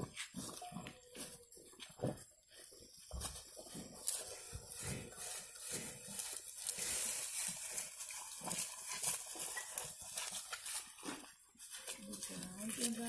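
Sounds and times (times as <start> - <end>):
dry stalks rustling and crackling: 2.5 - 13.0.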